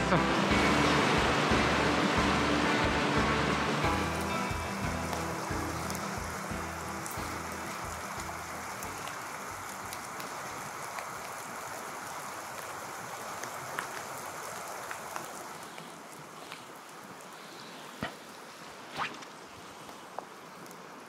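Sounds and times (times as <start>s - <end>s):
background music: 0.0s - 9.9s
flowing river water: 0.0s - 21.0s.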